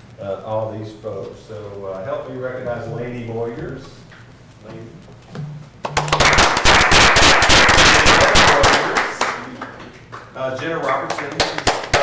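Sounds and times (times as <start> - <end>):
audience applause: 5.9 - 12.0.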